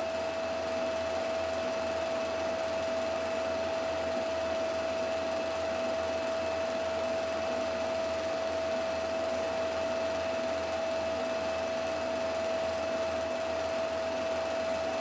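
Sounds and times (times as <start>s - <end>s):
film projector whirring: 0.0s - 15.0s.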